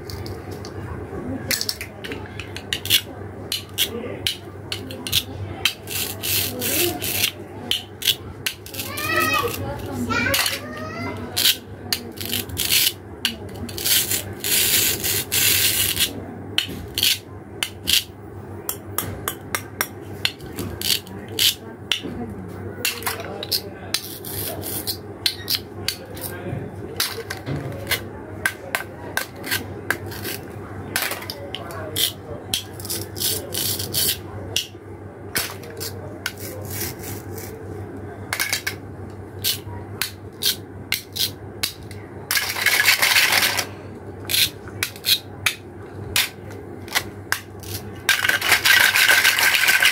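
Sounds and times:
plastic pieces clicking and tapping: 46.2s - 49.9s.

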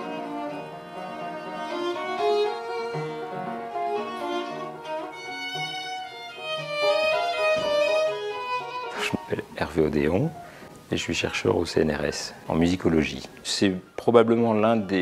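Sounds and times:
violin melody: 0.0s - 10.8s.

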